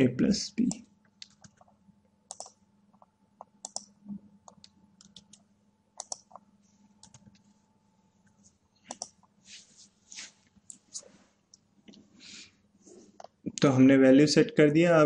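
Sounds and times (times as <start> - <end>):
faint low hum: 0.0 - 15.0
computer keyboard keystrokes: 0.6 - 1.7, 2.3 - 6.4, 7.0 - 7.4, 8.9 - 9.3
mouse clicks: 2.3 - 2.6, 3.4 - 3.9, 6.0 - 6.4, 8.9 - 9.3.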